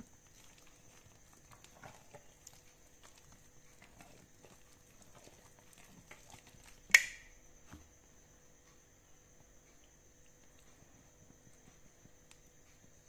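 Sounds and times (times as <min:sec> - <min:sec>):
spatula stirring thick soap: 0:00.0 - 0:08.6.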